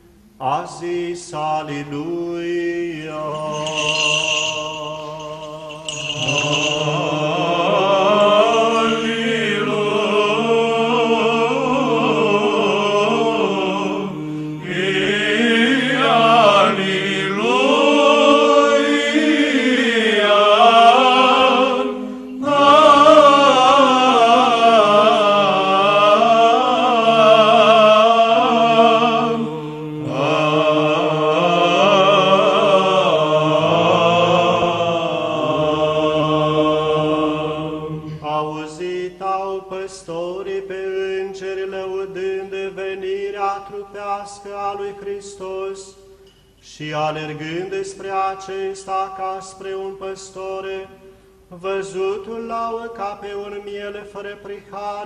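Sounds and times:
choir chanting: 0.4s - 39.4s.

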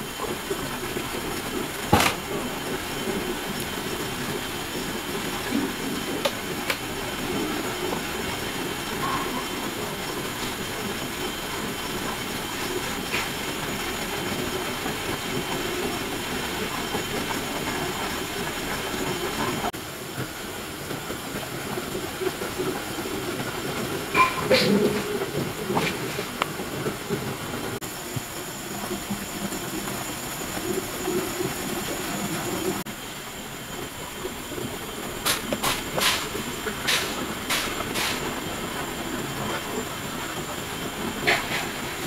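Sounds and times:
gas stove burner running: 0.0s - 19.7s.

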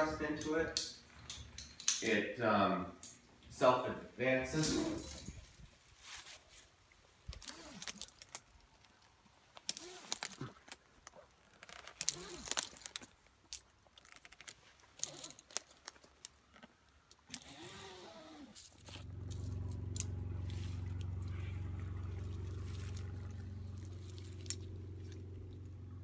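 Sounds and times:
metal hardware and rope clicking: 0.0s - 2.2s, 4.6s - 5.5s, 9.6s - 17.5s
engine hum: 17.4s - 26.0s.

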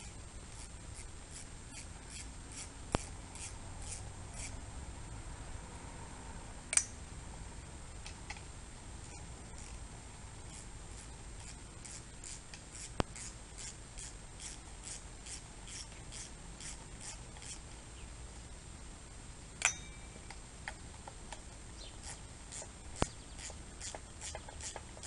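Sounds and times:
hex wrench ticking: 0.5s - 4.5s, 10.5s - 17.6s, 22.0s - 25.0s
sharp click: 6.7s - 7.0s.

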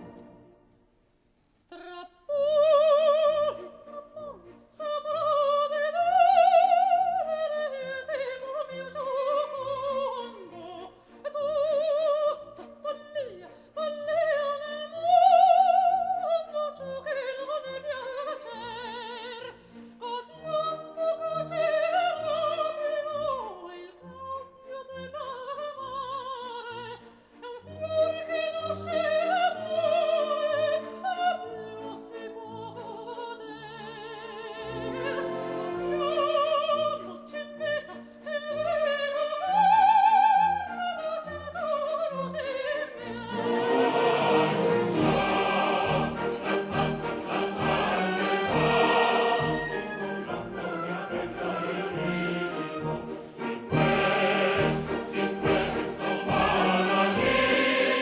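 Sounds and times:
orchestral accompaniment: 0.0s - 0.8s, 27.4s - 58.0s.

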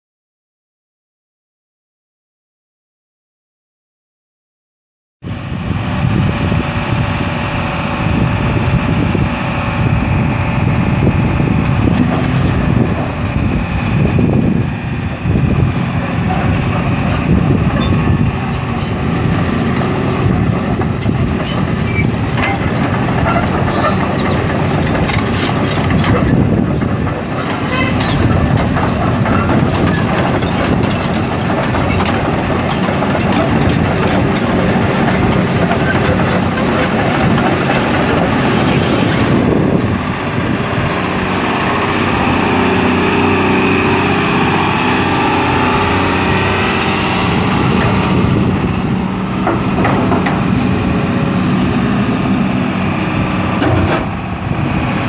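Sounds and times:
excavator diesel engine running: 5.3s - 55.0s
track pads clanking and squeaking: 11.7s - 39.6s, 49.3s - 51.0s, 53.5s - 54.5s.

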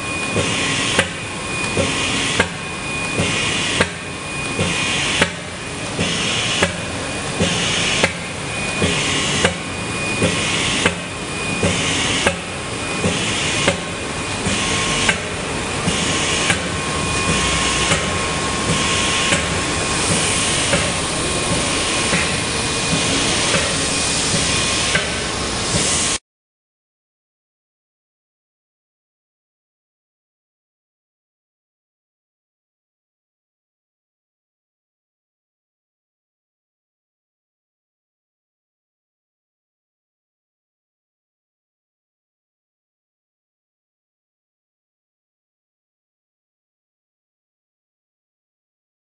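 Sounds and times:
steady machine whine: 0.0s - 26.2s
printing machine knocking: 0.3s - 26.0s.

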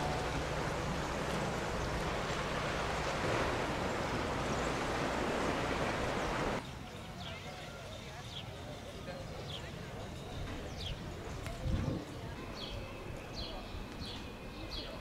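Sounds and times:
sea surf washing on shore: 0.0s - 6.6s.

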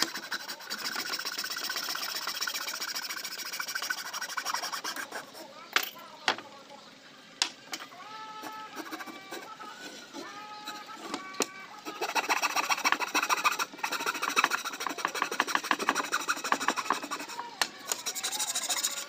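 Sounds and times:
hand file rasping on wood: 0.0s - 5.4s, 11.8s - 19.0s.

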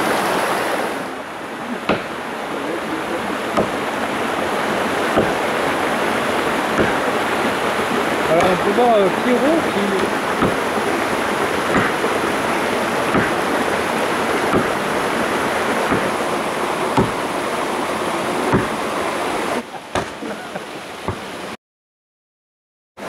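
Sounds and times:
stream rushing: 0.0s - 21.6s
axe chopping into log: 1.9s - 2.2s, 3.6s - 3.9s, 5.0s - 5.5s, 6.7s - 7.1s, 8.3s - 8.6s, 10.0s - 10.8s, 11.6s - 12.1s, 13.1s - 13.6s, 14.4s - 14.8s, 15.9s - 16.2s, 17.0s - 17.3s, 18.5s - 18.8s, 19.9s - 20.2s.

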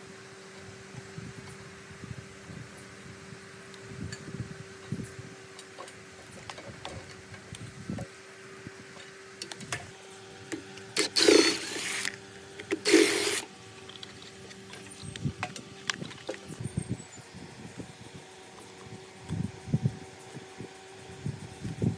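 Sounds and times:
cordless drill running: 11.0s - 13.5s.

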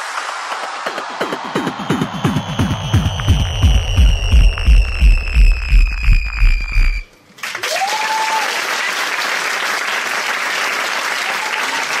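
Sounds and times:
electronic music with heavy bass: 0.0s - 7.1s
audience applause: 0.0s - 12.0s
rising whistle from crowd: 0.9s - 7.1s.

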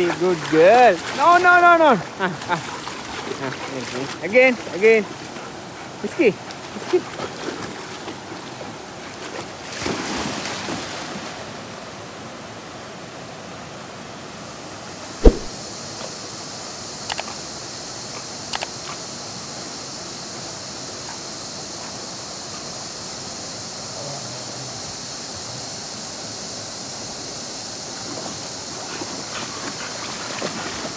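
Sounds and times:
dogs splashing through water: 0.0s - 11.3s, 28.0s - 30.9s
river and small waterfall rushing: 0.0s - 15.5s
sharp knock: 15.2s - 15.5s.

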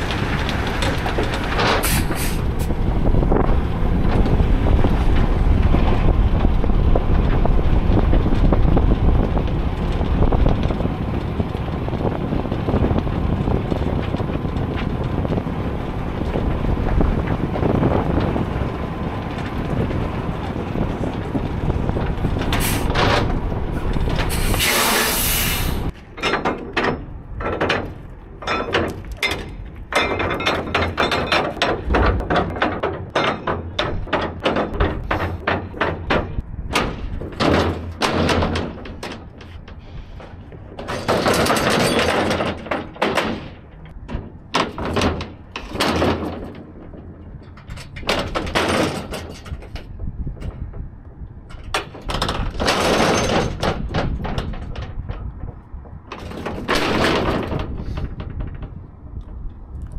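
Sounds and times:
truck engine rumbling: 0.0s - 59.9s
air brake hisses: 24.3s - 25.9s
knocks and clicks: 26.2s - 59.9s.

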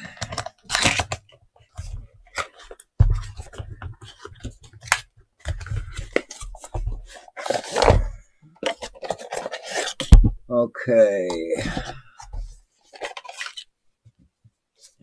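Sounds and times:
cardboard scraping and rustling: 0.0s - 10.4s, 11.2s - 13.7s.

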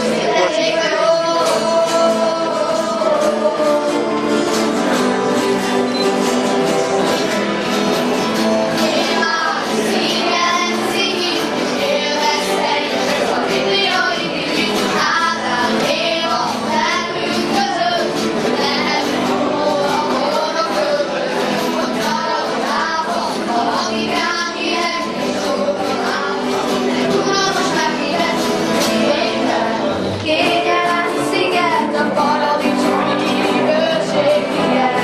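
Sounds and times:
acoustic guitars strumming: 0.0s - 35.0s
children singing: 0.0s - 35.0s.

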